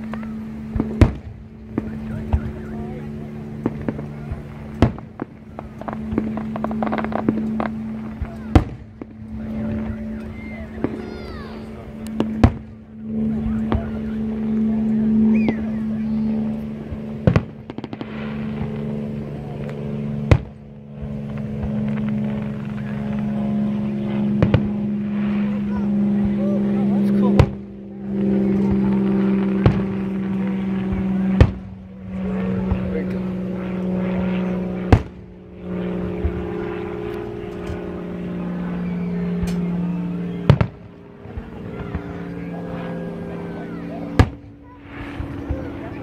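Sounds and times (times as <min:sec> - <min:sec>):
fireworks booming: 0:00.0 - 0:32.9, 0:34.7 - 0:36.4, 0:40.4 - 0:42.4, 0:44.1 - 0:46.0
fireworks crackling: 0:00.0 - 0:32.9
droning hum: 0:00.0 - 0:46.0.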